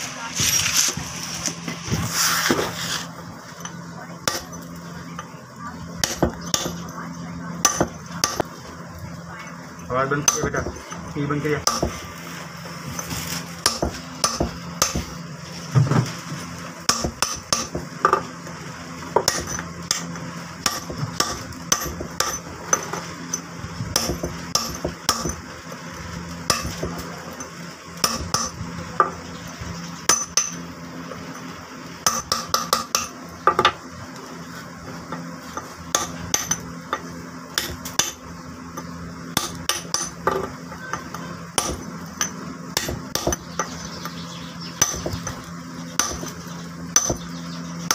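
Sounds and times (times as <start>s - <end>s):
hammer striking chisel on stone: 20.7s - 22.4s, 28.0s - 29.1s, 37.6s - 38.2s, 38.8s - 43.8s, 44.8s - 45.4s, 46.0s - 46.4s, 47.0s - 47.3s.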